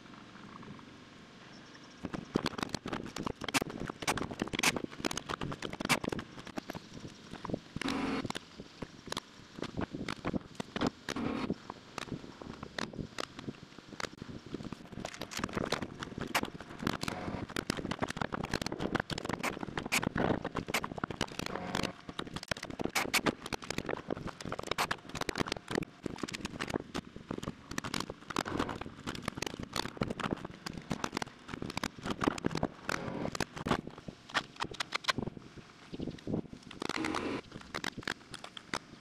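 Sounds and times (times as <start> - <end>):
nail gun driving nails: 2.3 - 6.6, 7.8 - 8.4, 14.9 - 26.8, 36.6 - 38.9.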